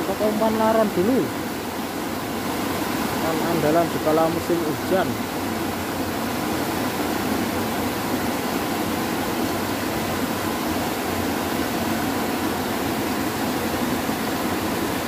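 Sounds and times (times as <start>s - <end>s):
river water rushing over weir: 0.0s - 15.0s.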